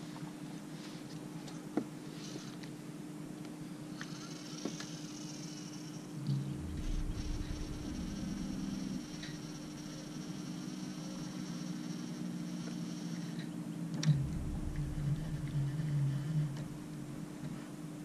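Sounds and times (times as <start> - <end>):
low mechanical hum: 0.0 - 18.0
wavering low drone: 6.0 - 12.6, 14.0 - 18.0.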